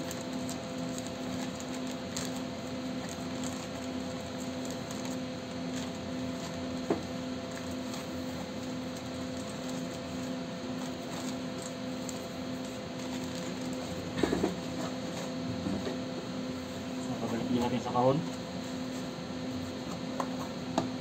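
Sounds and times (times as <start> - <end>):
plastic packaging rustling: 0.0 - 6.7, 7.4 - 15.3
steady electrical hum: 0.0 - 21.0.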